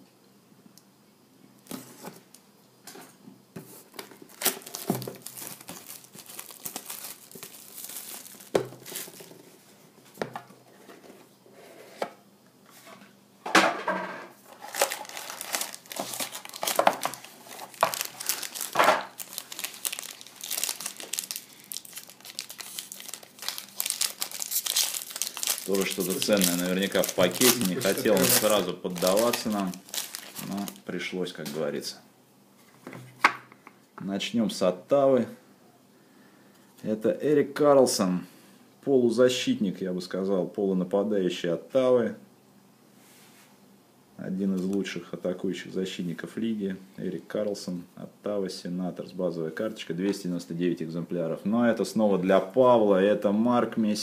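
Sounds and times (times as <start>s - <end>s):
packaging crinkling and tearing: 3.9s - 9.4s, 14.5s - 30.9s
foil pack crinkling and tearing: 4.2s - 9.4s, 14.5s - 30.9s.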